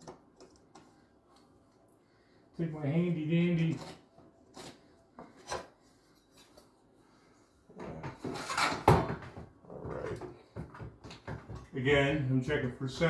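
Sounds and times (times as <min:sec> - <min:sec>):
tools scraping drywall ceiling: 0:03.5 - 0:06.6, 0:07.9 - 0:09.2.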